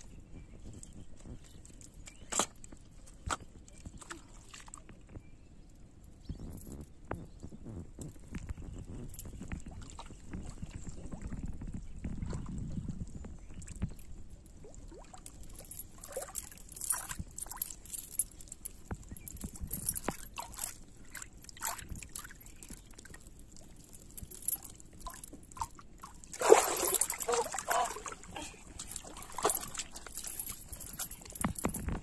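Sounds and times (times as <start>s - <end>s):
muddy water sloshing and gurgling: 2.3s - 5.1s, 9.1s - 17.7s, 19.5s - 32.0s
metal chain links clinking: 14.9s - 32.0s
short splashes: 26.3s - 30.1s.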